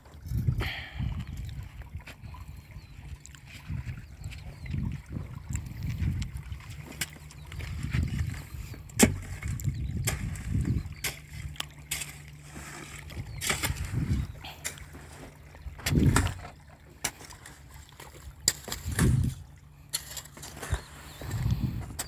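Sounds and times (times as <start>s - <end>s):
pick-mattock chopping into soil: 9.0s - 11.3s.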